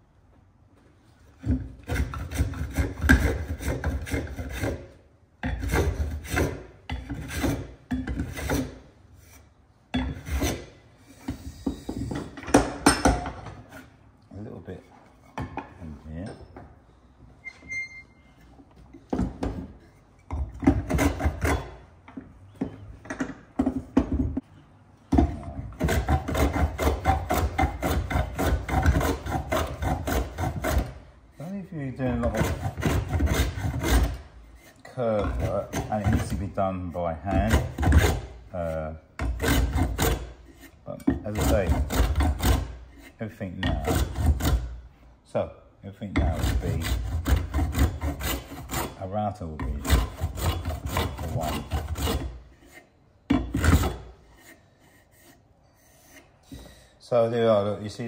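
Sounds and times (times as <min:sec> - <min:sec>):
plane cutting wood: 0:01.8 - 0:05.0, 0:05.6 - 0:08.8, 0:20.6 - 0:21.8, 0:25.7 - 0:31.0, 0:32.0 - 0:44.7, 0:46.2 - 0:49.0, 0:49.6 - 0:54.6.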